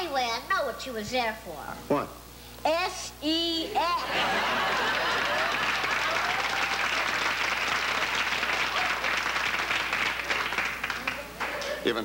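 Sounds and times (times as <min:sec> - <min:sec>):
audience laughter: 0:04.0 - 0:06.1
studio audience applauding: 0:04.4 - 0:12.0.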